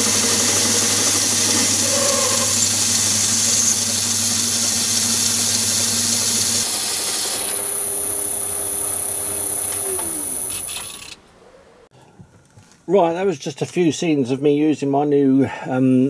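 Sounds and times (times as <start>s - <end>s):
cutting tool whine: 0.0s - 11.2s
metal lathe running: 0.0s - 11.2s.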